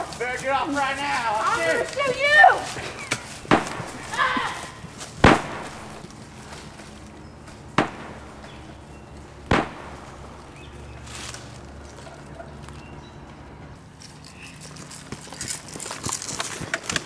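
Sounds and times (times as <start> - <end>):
gunshots: 3.5 - 4.1, 5.2 - 6.0, 7.8 - 8.6, 9.5 - 10.5.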